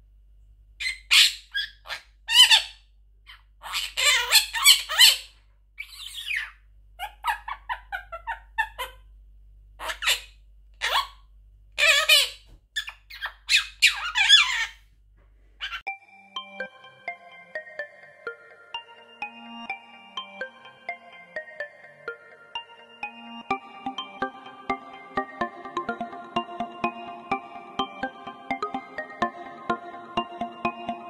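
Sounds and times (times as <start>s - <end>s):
parakeet imitating laughter: 0.8s - 9.0s, 9.8s - 11.2s, 11.8s - 14.8s, 15.6s - 15.9s
parakeet chattering and squawking: 0.8s - 9.1s, 9.8s - 11.2s, 11.8s - 14.8s, 15.6s - 15.9s.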